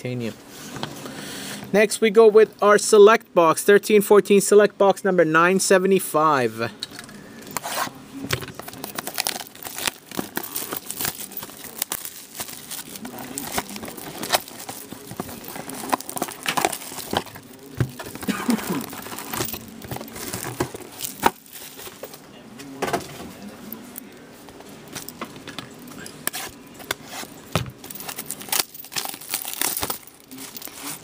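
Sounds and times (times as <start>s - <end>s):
plastic shrink-wrap tearing: 8.6s - 21.8s, 27.9s - 31.0s.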